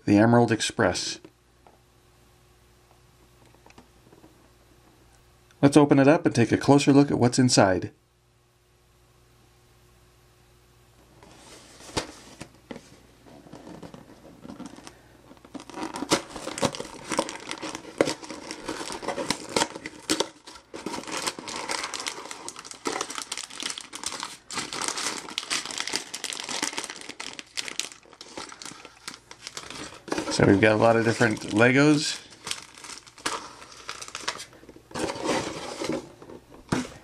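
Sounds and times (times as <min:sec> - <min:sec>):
plastic bags crinkling: 0:13.6 - 0:36.0
cardboard box being opened: 0:15.5 - 0:31.5, 0:32.4 - 0:37.0.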